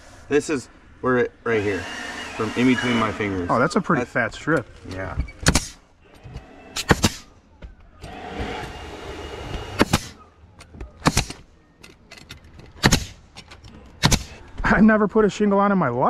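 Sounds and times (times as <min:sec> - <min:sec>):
nail gun shots: 0:05.4 - 0:05.8, 0:06.8 - 0:07.3, 0:08.0 - 0:10.2, 0:11.0 - 0:11.5, 0:12.8 - 0:13.2, 0:14.0 - 0:14.4.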